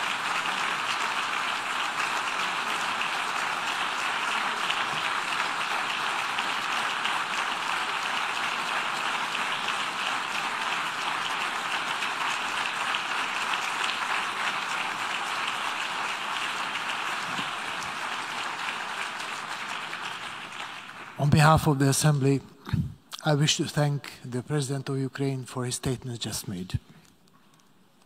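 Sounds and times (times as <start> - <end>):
large audience applauding: 0.0 - 22.2.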